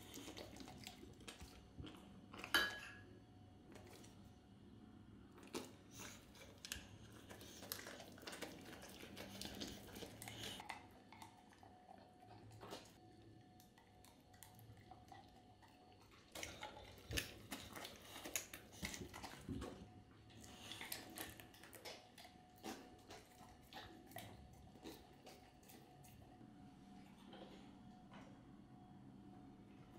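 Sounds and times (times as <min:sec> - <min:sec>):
dogs licking a metal spoon: 0:05.5 - 0:13.0.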